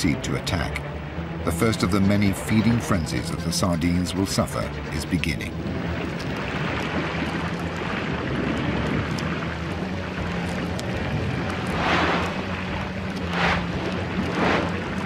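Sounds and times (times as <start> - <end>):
underwater rumble and hiss: 0.0 - 15.0
water whooshes: 5.6 - 15.0.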